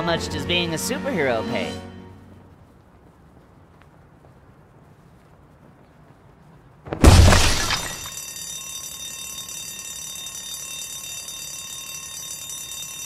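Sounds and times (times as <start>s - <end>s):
debris crumbling: 6.9s - 8.2s
alarm bell ringing: 7.7s - 13.0s.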